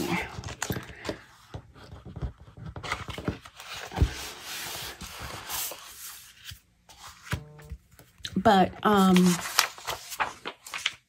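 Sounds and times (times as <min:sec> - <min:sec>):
paper rustling and sliding: 0:00.0 - 0:07.4, 0:08.9 - 0:11.0.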